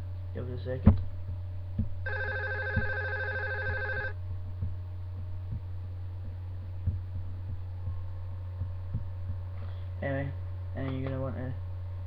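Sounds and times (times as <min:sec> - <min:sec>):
steady low hum: 0:00.0 - 0:12.0
telephone ringing: 0:02.1 - 0:04.2.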